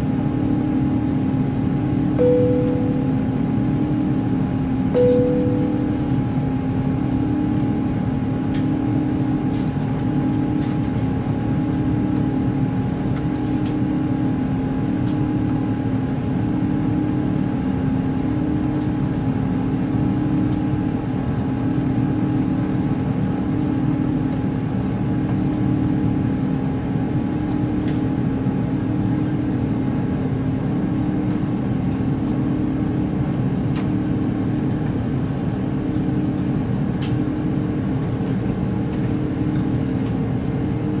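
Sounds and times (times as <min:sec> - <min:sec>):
pulsing low hum: 0:00.0 - 0:10.1
jet engines and airflow roar: 0:00.0 - 0:41.0.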